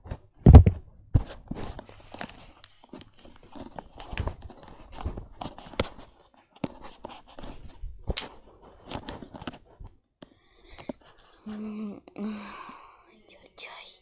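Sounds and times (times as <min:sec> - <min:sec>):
soft rustling: 0:01.2 - 0:10.0.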